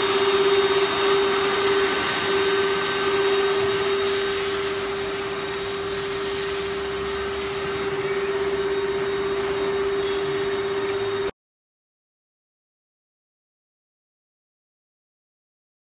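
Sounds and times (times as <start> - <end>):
wrapping machine drone: 0.0 - 11.3.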